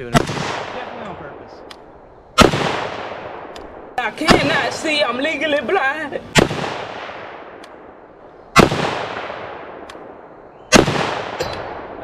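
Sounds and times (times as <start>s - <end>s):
rifle shots with echo: 0.0s - 5.1s, 6.3s - 12.0s.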